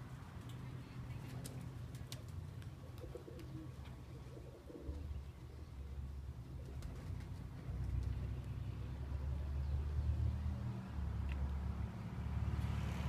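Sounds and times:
pigeons cooing: 1.0s - 8.2s.

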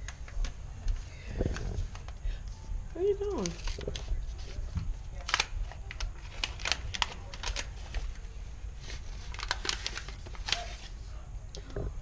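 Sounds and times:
paper envelope rustling: 3.3s - 11.1s.

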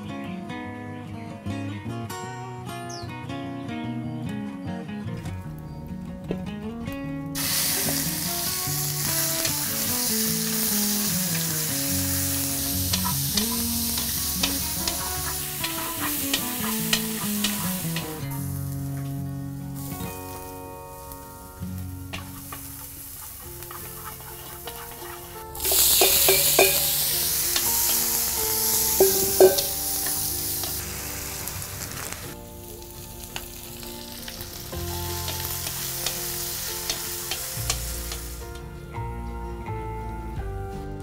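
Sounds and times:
food sizzling in oil: 7.4s - 38.6s
spatula scraping a wok: 22.2s - 30.8s.

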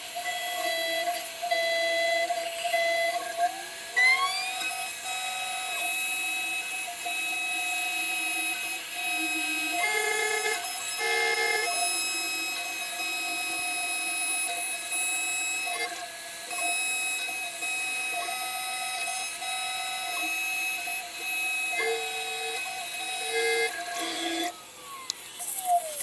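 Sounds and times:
spindle high whine: 4.3s - 16.0s.

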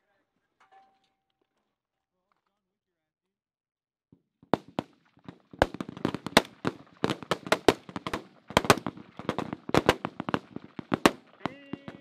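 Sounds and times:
rifle shots: 4.6s - 12.0s.

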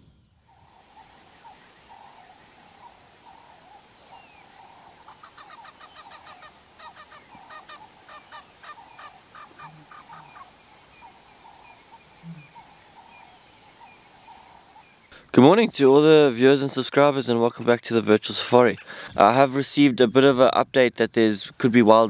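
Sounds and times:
insects or frogs humming: 0.5s - 15.2s
honking animal calls: 2.8s - 13.4s.

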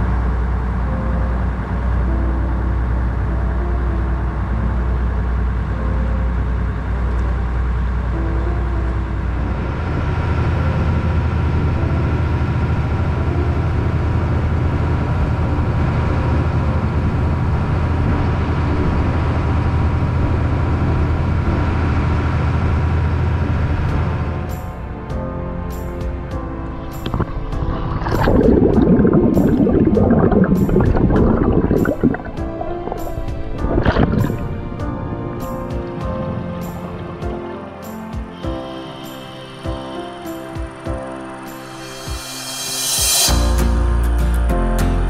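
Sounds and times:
water rushing past hull: 26.8s - 35.5s
boat engine running: 26.8s - 35.6s.

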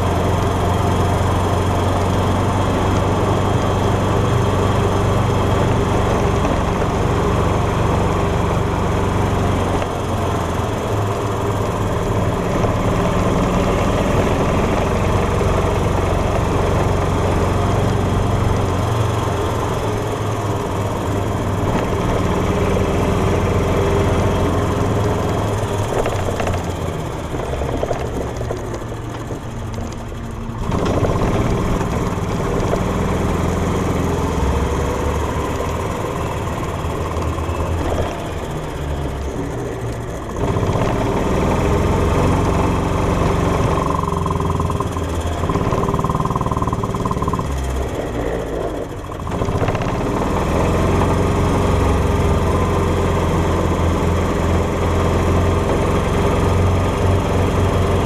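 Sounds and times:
golf cart engine running: 0.0s - 58.0s.

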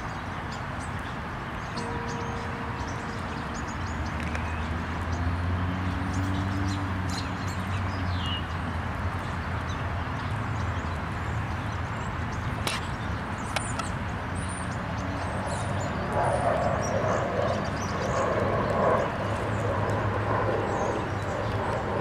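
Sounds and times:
birds chirping: 0.0s - 8.6s.

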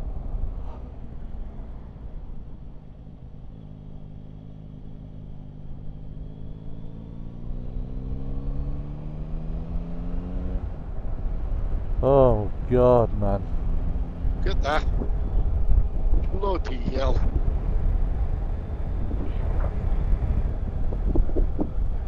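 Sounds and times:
low wind rumble: 0.0s - 6.1s, 6.9s - 22.0s
motorcycle engine revving: 3.4s - 11.0s.

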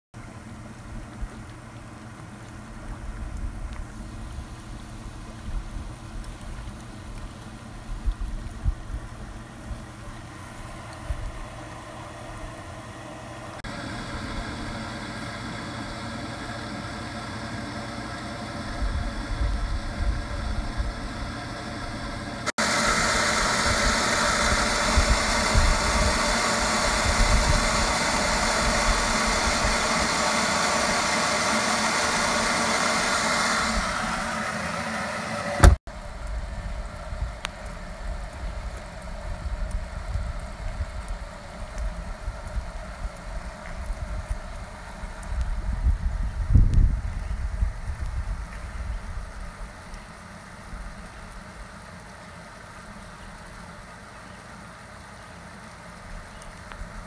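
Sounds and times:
electric water pump humming: 0.2s - 57.0s
low wind rumble: 2.7s - 14.9s, 18.6s - 30.1s, 35.6s - 49.8s.

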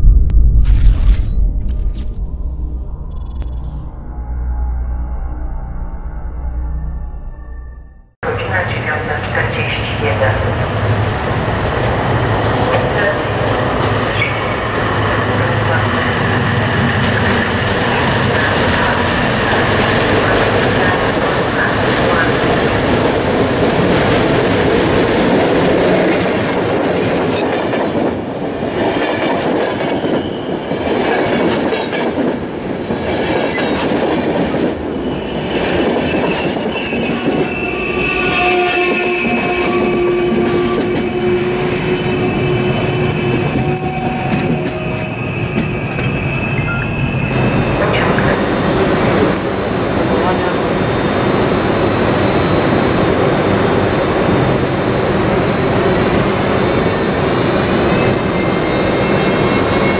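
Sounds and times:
train rolling on rails: 8.3s - 59.9s
train wheels squealing: 29.9s - 31.0s, 34.7s - 48.3s, 57.9s - 59.9s.

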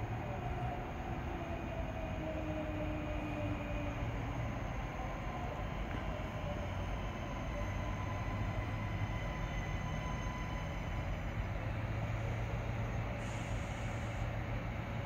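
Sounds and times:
diesel train engine droning: 0.0s - 15.0s.

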